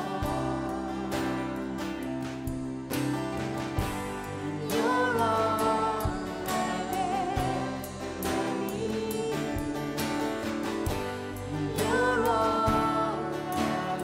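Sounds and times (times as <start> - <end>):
person singing: 0.0 - 2.2, 4.4 - 10.7, 11.4 - 14.0
worship band playing: 0.0 - 14.0.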